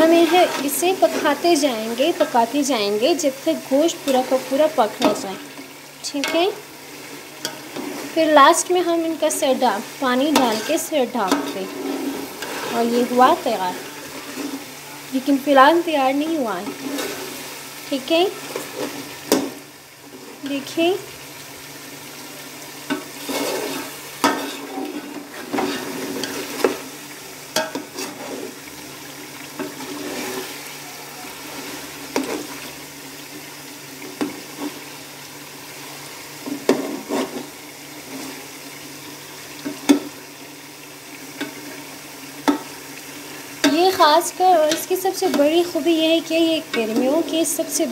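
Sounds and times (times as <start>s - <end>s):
meat sizzling in a pot: 0.0s - 47.9s
metal skimmer scraping a pot: 10.3s - 13.0s, 16.6s - 17.4s, 23.2s - 26.8s, 27.6s - 28.6s, 29.6s - 30.6s, 36.7s - 37.5s.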